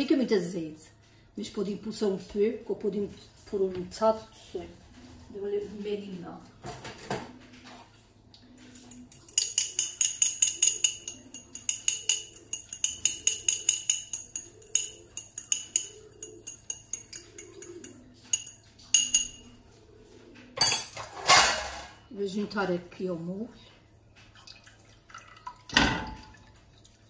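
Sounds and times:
utensil clinking against glass bowl: 8.6 - 19.6.

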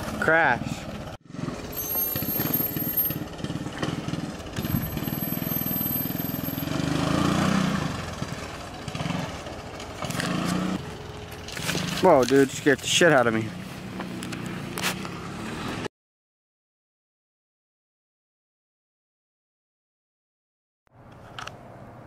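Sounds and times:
atv engine revving: 0.0 - 15.9.

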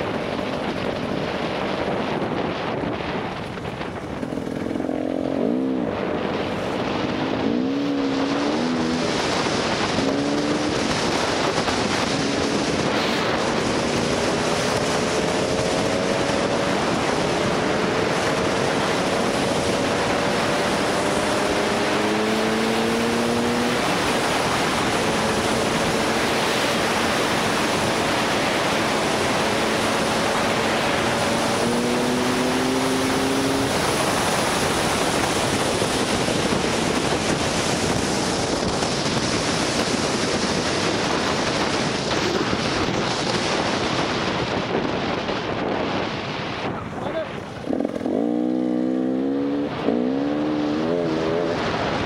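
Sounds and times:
wind buffeting microphone: 0.0 - 52.0
two-stroke motorcycle engine: 3.3 - 43.8, 47.0 - 52.0.

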